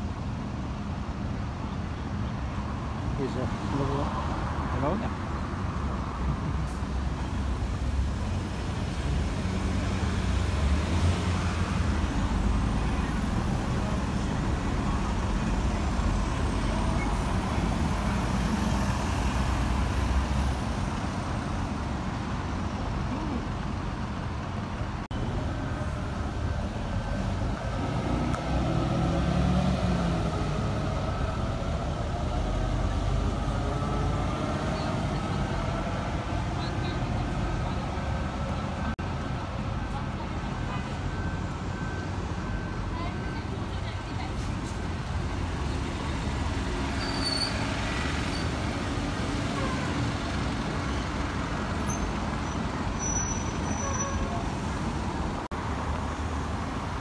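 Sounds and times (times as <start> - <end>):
bus engines running: 0.0 - 57.0
bus accelerating past: 2.8 - 57.0.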